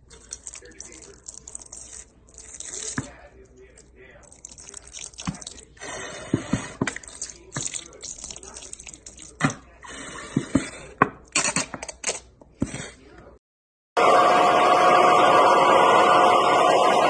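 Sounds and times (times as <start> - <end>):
ketchup squirting from bottle: 0.0 - 3.3, 4.2 - 5.8, 6.6 - 9.7
wet splats of sauce: 4.3 - 5.7, 6.8 - 9.6.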